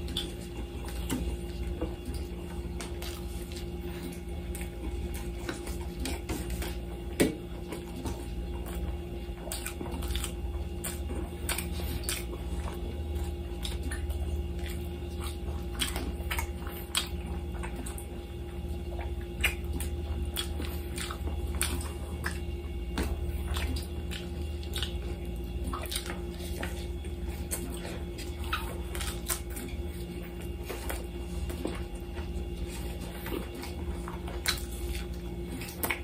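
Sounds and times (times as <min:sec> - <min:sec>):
chewing: 0:00.0 - 0:36.0
steady low hum: 0:00.0 - 0:36.0.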